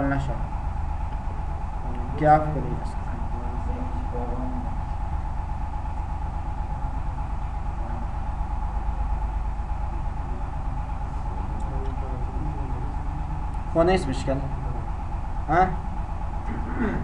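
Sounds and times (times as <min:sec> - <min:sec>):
low machine hum: 0:00.0 - 0:17.0
thin steady whine: 0:00.0 - 0:17.0.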